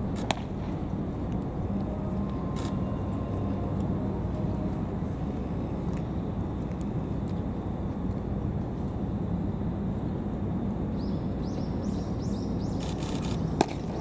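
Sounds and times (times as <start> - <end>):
outdoor rumble: 0.0 - 14.0
baseball popping into mitt: 0.2 - 0.5, 13.6 - 13.8
bird chirping: 11.0 - 13.6.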